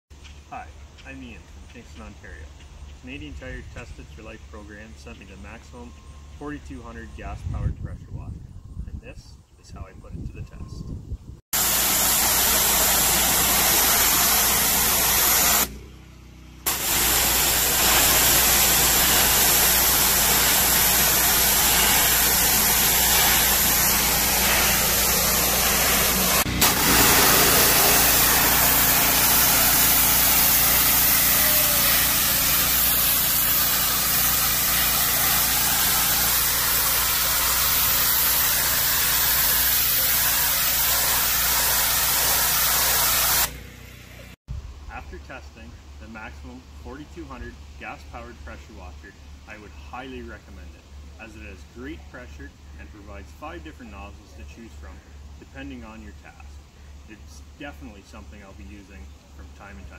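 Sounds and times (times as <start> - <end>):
high-pressure water jet hissing: 11.6 - 15.8, 16.7 - 43.8
pressure washer engine humming: 11.6 - 44.4.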